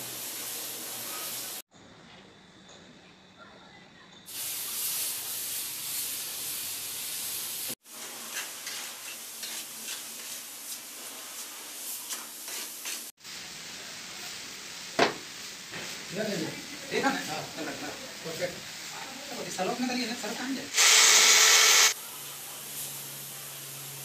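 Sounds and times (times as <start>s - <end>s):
mortar stirred in a bucket: 7.9s - 13.1s.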